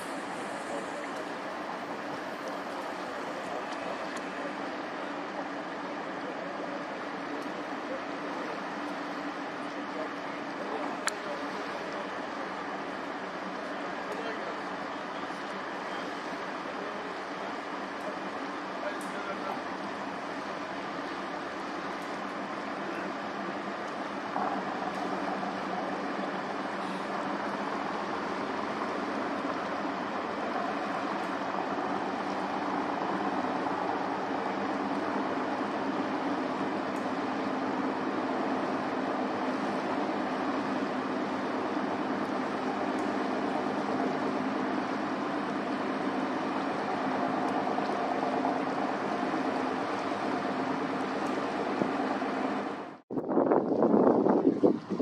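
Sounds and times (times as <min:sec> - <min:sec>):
ship engines running: 0:00.0 - 0:53.0
wind and water hiss: 0:00.0 - 0:55.0
wind noise: 0:51.4 - 0:55.0.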